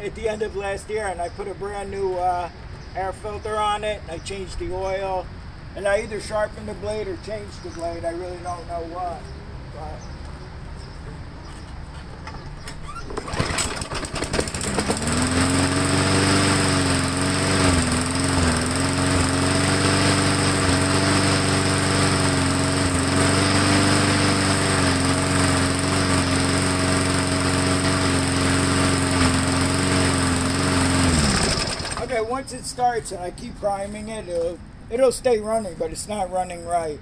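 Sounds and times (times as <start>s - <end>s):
lawn mower pull start: 12.2s - 32.3s
lawn mower engine running: 12.4s - 32.3s.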